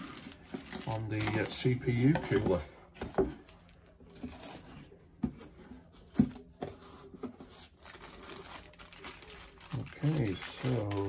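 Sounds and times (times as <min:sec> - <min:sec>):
packaging rustling: 0:00.0 - 0:02.6, 0:07.5 - 0:11.0.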